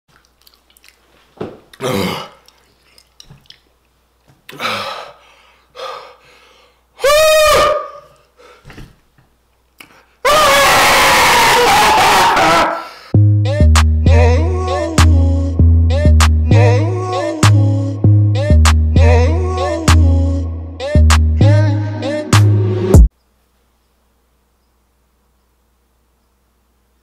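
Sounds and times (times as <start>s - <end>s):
man grunting and groaning: 1.8s - 2.4s, 4.5s - 5.2s
man crying out: 7.0s - 8.1s
man yelling: 7.0s - 8.1s.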